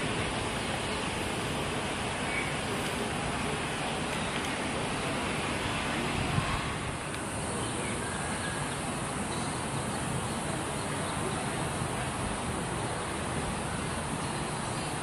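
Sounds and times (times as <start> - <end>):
wind noise on microphone: 0.0 - 10.8.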